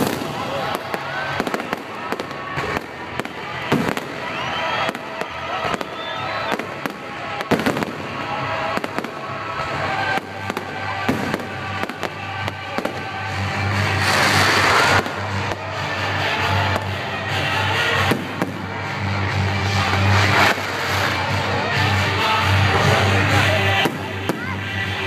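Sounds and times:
rising firework whistles: 0.0 - 8.1, 13.7 - 15.4
firework crackling: 0.0 - 25.0.

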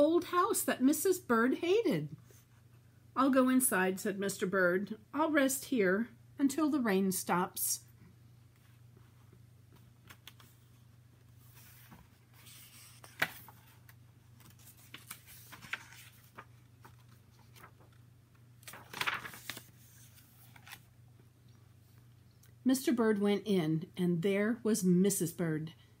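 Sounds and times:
faint low hum: 0.0 - 26.0
book pages rustling: 8.5 - 21.0.

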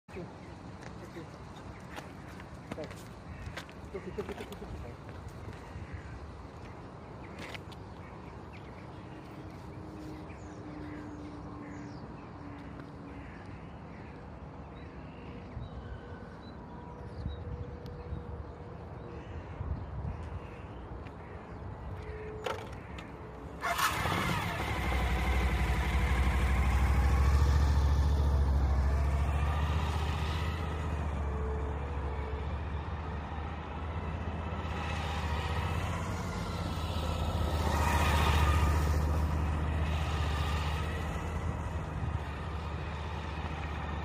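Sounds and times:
motorcycle engine starting and running: 22.4 - 31.2, 34.5 - 44.0.

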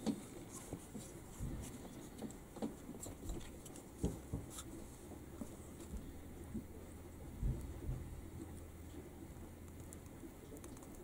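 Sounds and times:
faint taps and rustles of hands: 0.0 - 4.8.

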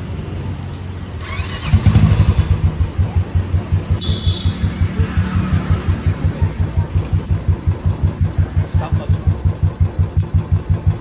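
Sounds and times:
motorcycle engine idling: 1.2 - 11.0
short high beep: 4.0 - 4.7.

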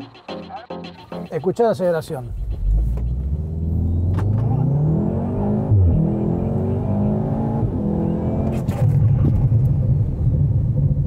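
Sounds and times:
car engine accelerating: 2.3 - 11.0.

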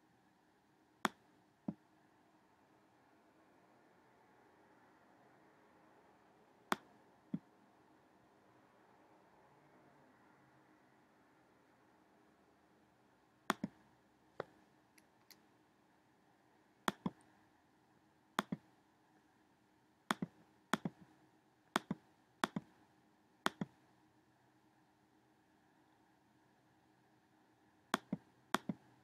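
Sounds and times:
computer mouse button clicks: 13.5 - 13.8, 16.9 - 17.2, 18.4 - 18.6, 20.1 - 21.0, 21.8 - 22.7, 23.5 - 23.7, 28.0 - 28.8.

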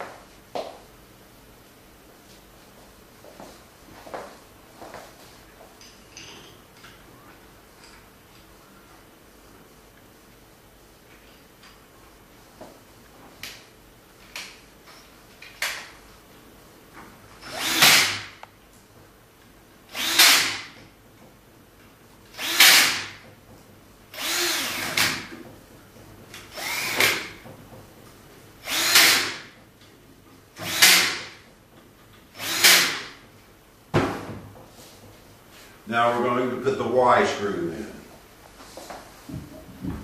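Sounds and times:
cordless drill driving screws: 17.4 - 18.4, 19.9 - 20.8, 22.4 - 23.2, 24.1 - 25.3, 26.5 - 27.4, 28.6 - 29.4, 30.6 - 31.4, 32.3 - 33.1.

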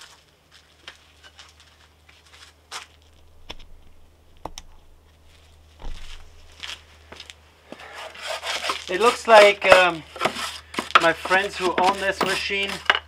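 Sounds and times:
rustling and scratching: 0.9 - 6.9, 7.8 - 13.0
steady low hum: 1.0 - 8.2
hand tools clicking and knocking: 9.4 - 13.0.

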